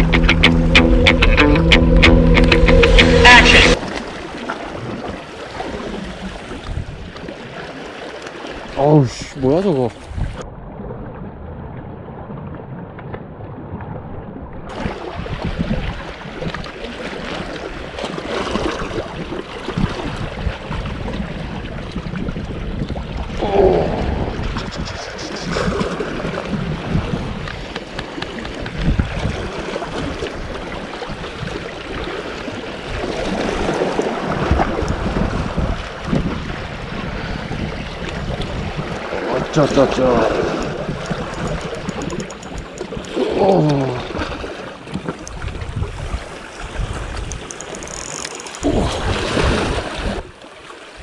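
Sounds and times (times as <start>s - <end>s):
wind buffeting microphone: 5.9s - 7.3s, 10.0s - 16.8s, 18.5s - 43.3s, 44.0s - 48.0s
sea washing against rocks: 14.7s - 51.0s
fishing reel knocks: 40.4s - 43.2s, 47.2s - 48.6s.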